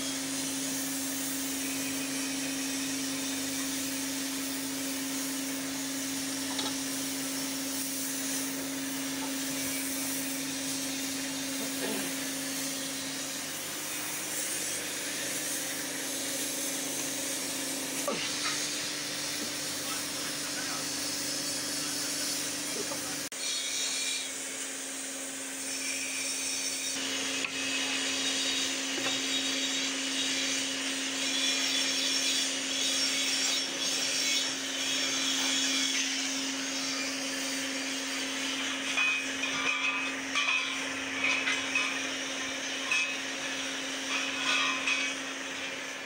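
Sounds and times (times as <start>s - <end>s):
electric air blower whirring: 0.0s - 23.4s, 34.4s - 46.0s.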